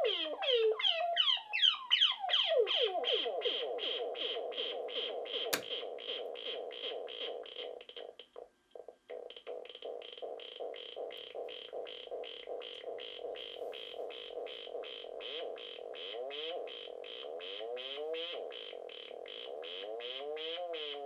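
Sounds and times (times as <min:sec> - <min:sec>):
analog synthesizer pulsing: 0:09.5 - 0:20.7.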